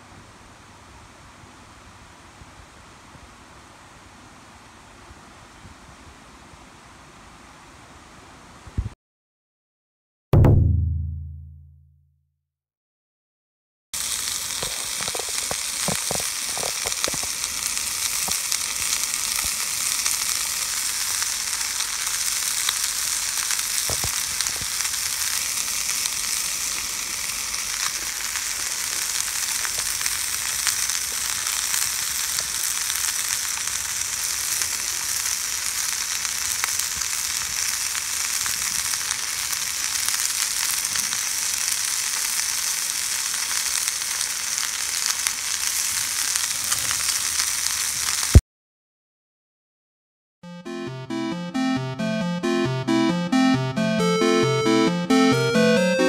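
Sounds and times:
meat sizzling in a pan: 14.0 - 48.4.

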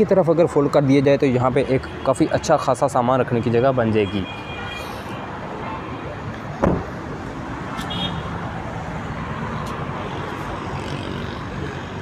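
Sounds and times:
steady background noise: 0.0 - 12.0
car tailgate thud: 6.6 - 6.9.

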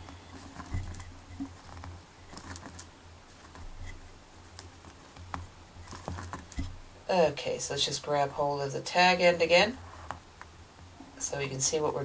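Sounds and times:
fingers handling fishing line: 0.0 - 6.8
low steady hum: 0.0 - 12.0.

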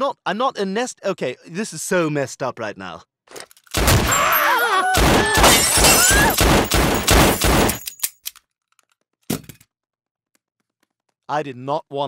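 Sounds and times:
people screaming: 4.0 - 6.4
handgun automatic bursts: 6.0 - 8.1.

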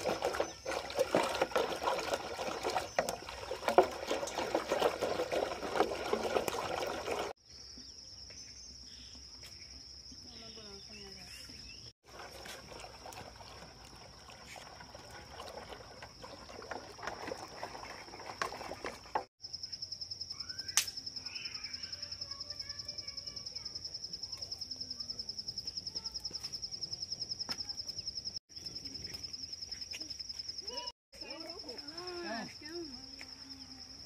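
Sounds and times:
insect trilling: 19.4 - 34.0.

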